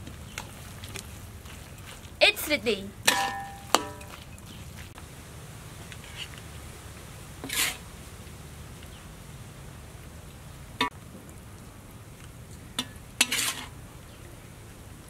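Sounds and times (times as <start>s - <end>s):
metal spatula knocking on pan: 3.1s - 4.1s.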